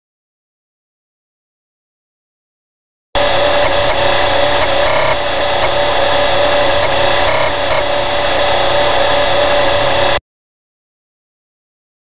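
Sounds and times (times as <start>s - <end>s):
floppy disk drive whirring: 3.2s - 10.2s.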